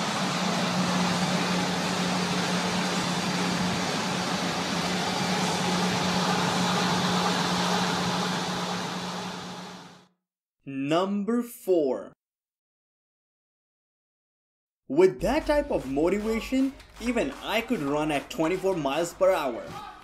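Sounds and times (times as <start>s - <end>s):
treadmill belt and motor whirring: 0.0s - 10.0s
low hum: 0.0s - 10.1s.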